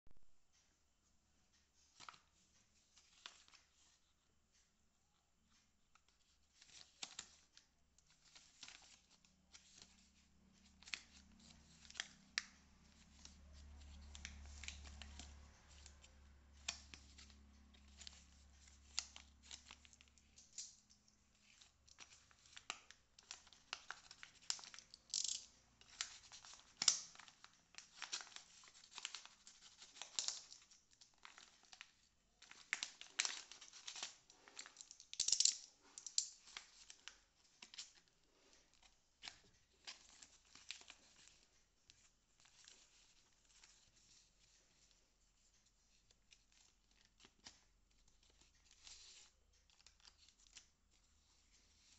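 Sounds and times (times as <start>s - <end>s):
plastic pouch crinkling: 8.2s - 43.8s.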